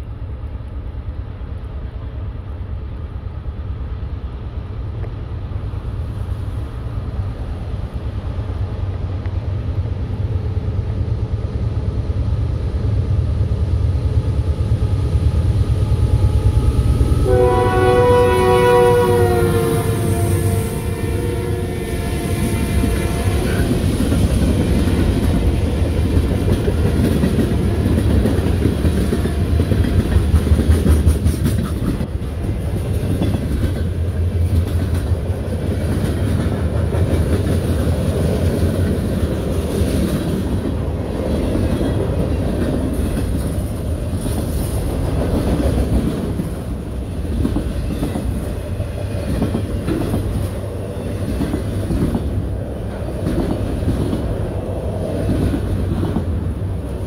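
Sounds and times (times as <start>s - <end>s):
train wheels rumbling on rail: 0.0s - 57.0s
wheels clacking over rail joints: 22.6s - 56.6s.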